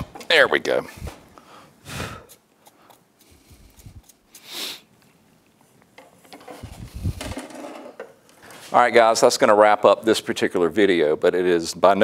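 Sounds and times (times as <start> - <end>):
short breathy hiss: 1.5 - 4.9.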